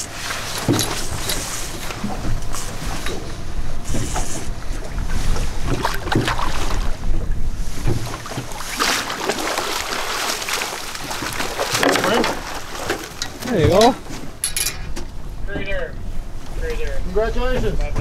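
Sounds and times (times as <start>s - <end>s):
water sloshing: 0.0s - 16.6s
fish thrashing and splashing: 4.0s - 7.0s, 7.7s - 14.4s.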